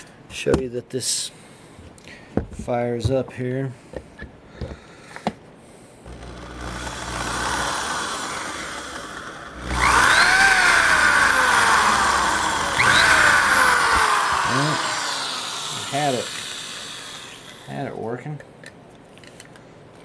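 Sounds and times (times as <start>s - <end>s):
power drill motor whining: 6.1s - 17.9s.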